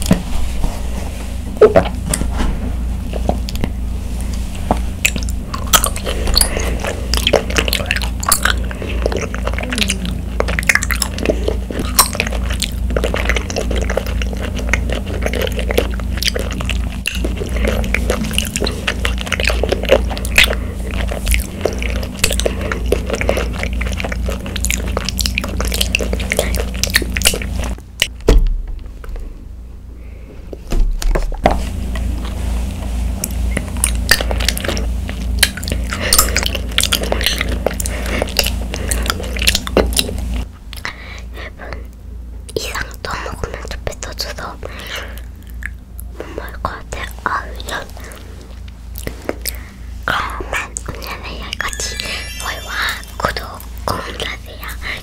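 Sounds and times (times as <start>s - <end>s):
steady low hum: 0.0s - 55.0s
chewing tapioca pearls: 3.1s - 28.2s, 30.6s - 55.0s.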